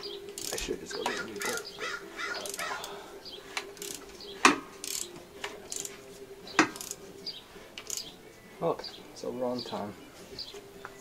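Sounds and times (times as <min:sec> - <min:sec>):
ratchet wrench clicking: 0:00.3 - 0:00.7, 0:02.4 - 0:02.7, 0:03.8 - 0:04.1, 0:04.8 - 0:05.1, 0:05.7 - 0:06.0, 0:06.6 - 0:07.0, 0:07.8 - 0:08.1.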